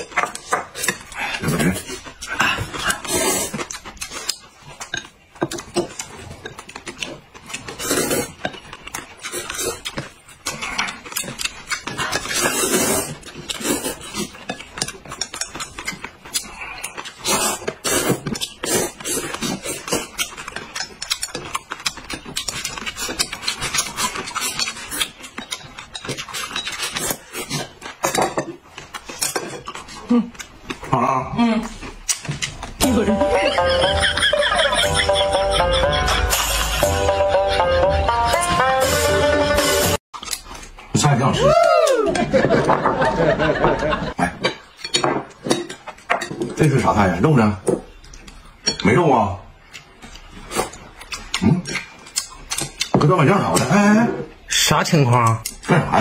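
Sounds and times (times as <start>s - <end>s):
people slurping noodles: 0.8s - 4.4s, 7.0s - 8.6s, 9.2s - 21.6s.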